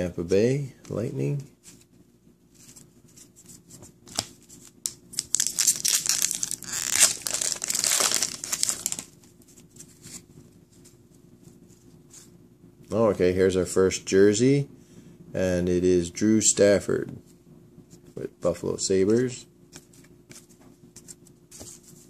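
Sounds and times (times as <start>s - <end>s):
foil wrapper crinkling: 5.1s - 9.2s.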